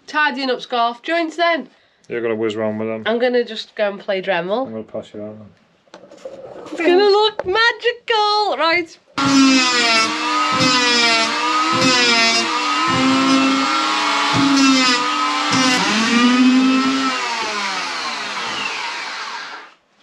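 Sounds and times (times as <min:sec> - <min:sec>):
rotary tool whining: 0:09.2 - 0:19.8.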